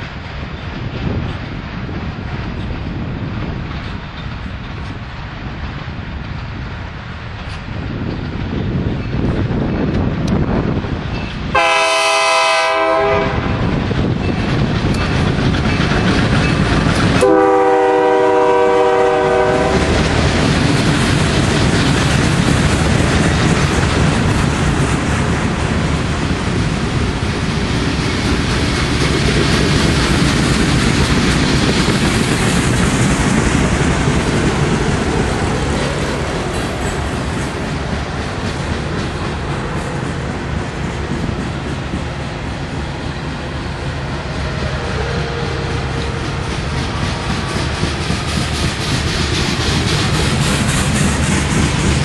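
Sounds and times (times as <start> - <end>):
train wheels rumbling on rails: 0.0 - 52.0
train horn blasts: 11.5 - 13.7, 17.1 - 20.1, 44.7 - 46.4.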